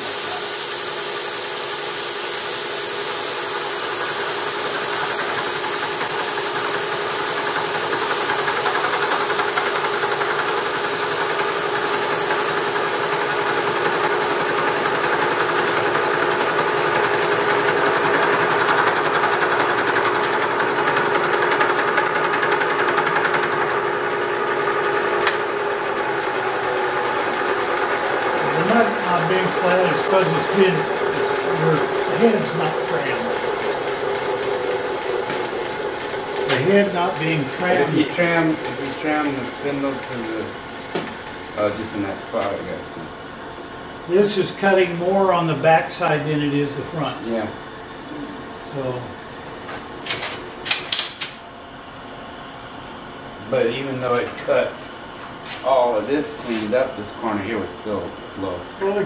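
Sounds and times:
milling machine cutting: 0:00.0 - 0:43.2.

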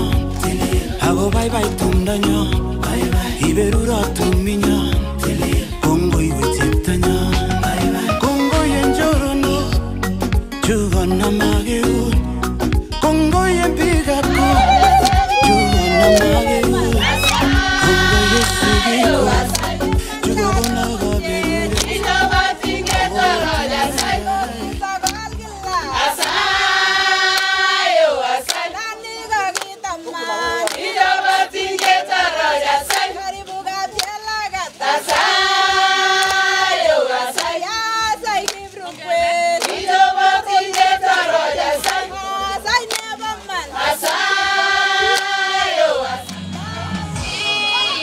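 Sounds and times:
group of voices singing: 0:00.0 - 0:48.0
hand clapping: 0:14.2 - 0:17.6, 0:18.4 - 0:25.4, 0:26.1 - 0:26.4, 0:27.3 - 0:27.6, 0:28.4 - 0:28.7, 0:29.4 - 0:30.9, 0:31.6 - 0:32.0, 0:32.8 - 0:33.2, 0:33.9 - 0:34.3, 0:35.0 - 0:35.4, 0:36.2 - 0:36.5, 0:37.3 - 0:37.6, 0:38.4 - 0:38.9, 0:39.5 - 0:40.0, 0:40.6 - 0:41.2, 0:41.8 - 0:42.1, 0:42.7 - 0:43.2, 0:44.0 - 0:44.2, 0:45.0 - 0:45.3.

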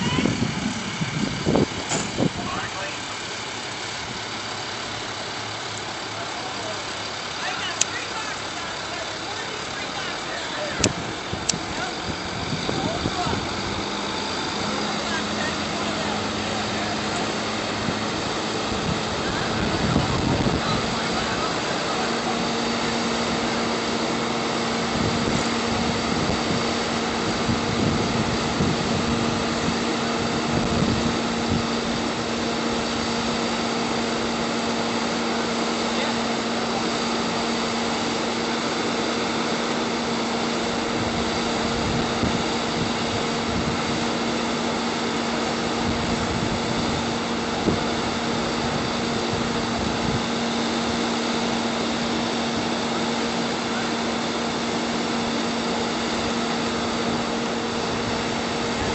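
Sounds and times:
heavy engine running: 0:00.0 - 0:58.9
sharp pop: 0:01.9 - 0:02.2.

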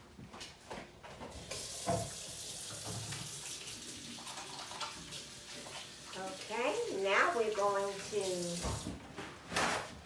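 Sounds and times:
water running into sink: 0:01.3 - 0:09.0
kitchen tap turned on: 0:01.4 - 0:03.7.

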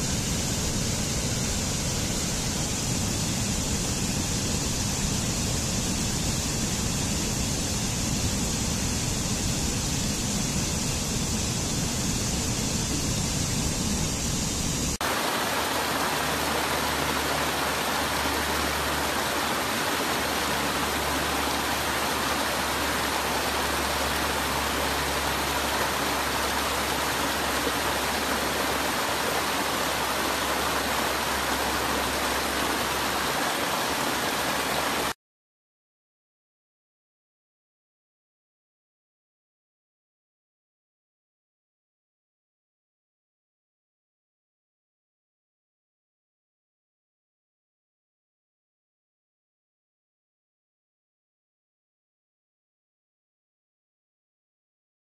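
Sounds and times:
stream cascading over rocks: 0:15.0 - 0:35.2.

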